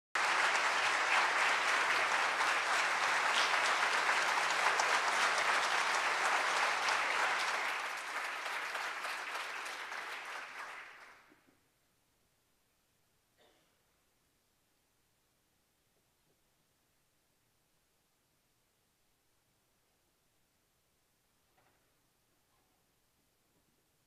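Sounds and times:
audience applauding: 0.2 - 11.4.

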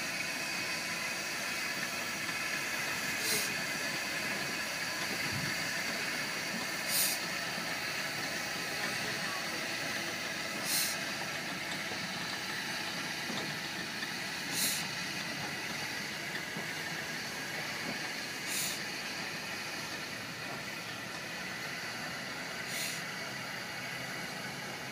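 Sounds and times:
brief sharp steam hiss: 0.0 - 3.9, 6.8 - 8.0, 10.4 - 11.2, 14.3 - 15.2, 18.0 - 19.8, 22.6 - 23.2
steam locomotive hissing: 0.0 - 24.9.

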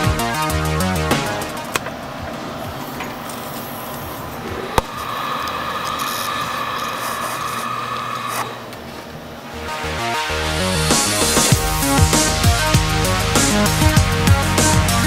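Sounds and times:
hard drive rubbing and scraping: 1.6 - 9.1.

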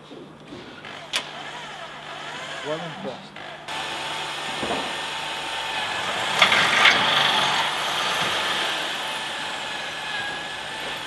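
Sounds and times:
electric drill cutting into steel: 0.8 - 11.0.

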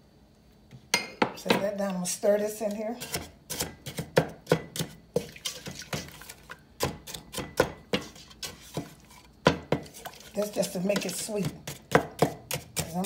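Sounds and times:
thick sauce being stirred: 2.6 - 13.0.

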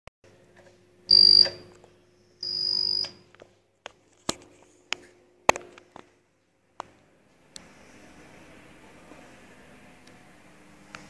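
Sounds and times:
lift call button beeps: 1.1 - 1.7, 2.4 - 3.2.

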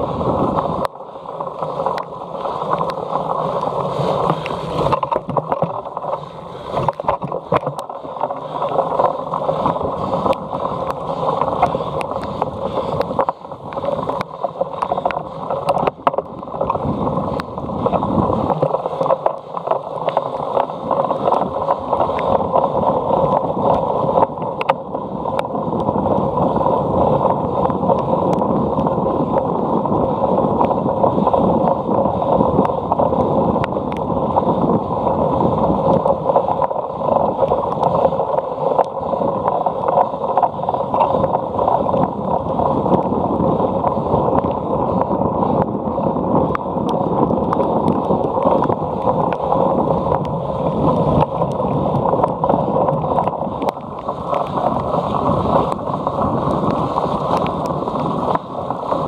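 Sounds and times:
wind rushing over microphone: 0.0 - 59.0
bike clicks and rattles: 0.7 - 26.6, 35.9 - 59.0.

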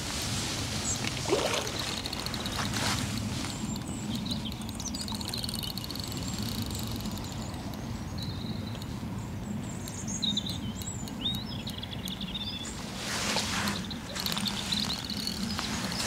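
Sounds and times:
low outdoor background noise: 0.0 - 16.0
small birds chirping: 0.8 - 16.0.

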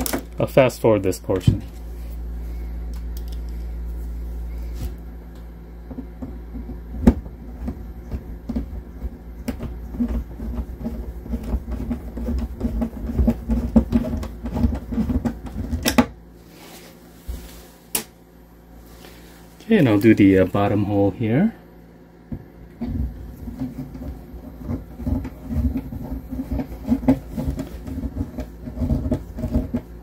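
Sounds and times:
screwdriver mechanical hum: 2.9 - 16.1, 22.7 - 30.0.

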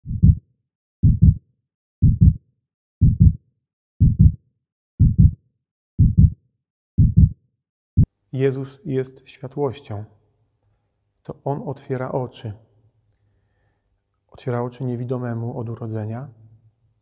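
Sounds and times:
heartbeat thumps: 0.0 - 0.4, 1.0 - 1.4, 2.0 - 2.4, 3.0 - 3.4, 4.0 - 4.4, 5.0 - 5.4, 6.0 - 6.4, 7.0 - 7.4.

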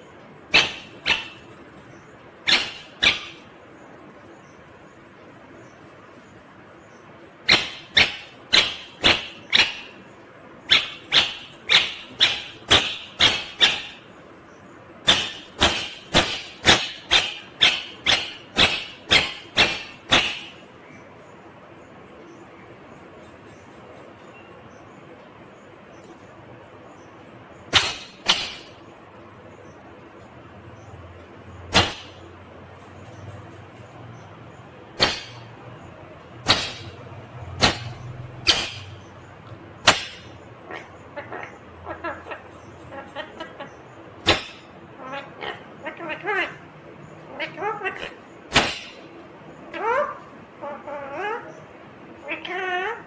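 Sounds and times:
low steady hum: 0.0 - 53.0
sharp animal calls: 0.4 - 3.6, 7.4 - 14.2, 15.0 - 20.8, 31.7 - 32.3, 34.9 - 39.2.

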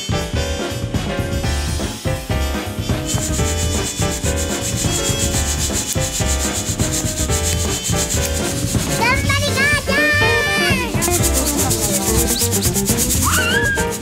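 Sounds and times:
coffee beans rattling in roaster: 3.1 - 9.0, 10.9 - 14.0
child squealing: 9.0 - 11.0, 13.2 - 14.0.

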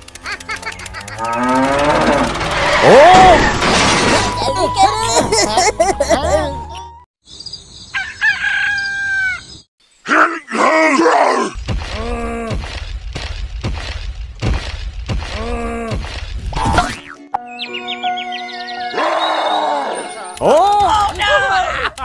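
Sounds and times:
rooster crowing: 7.9 - 9.6
voice groaning in pain: 10.1 - 12.6, 15.4 - 16.0.

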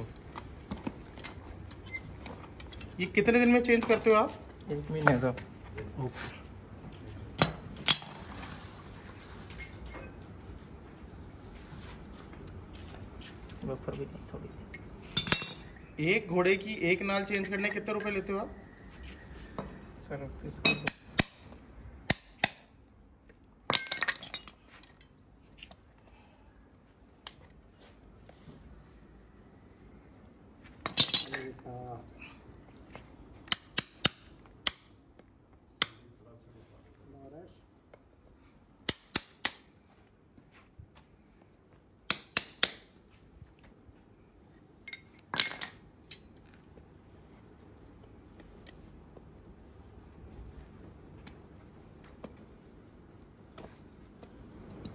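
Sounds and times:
steel tools clinking on horseshoe: 1.2 - 3.2, 14.7 - 15.8, 19.6 - 21.5, 23.7 - 25.2, 30.8 - 31.6, 44.8 - 46.4
steel tools clattering: 30.8 - 31.6.

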